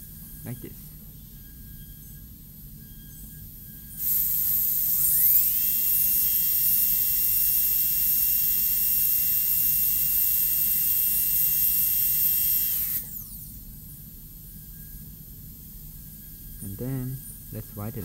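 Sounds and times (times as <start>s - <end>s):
dental drill whine: 0.0s - 18.0s.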